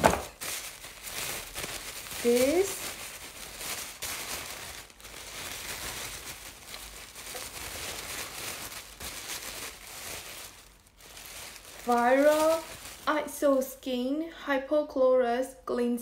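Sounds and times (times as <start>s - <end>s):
paper crinkling and rustling: 0.0s - 13.3s.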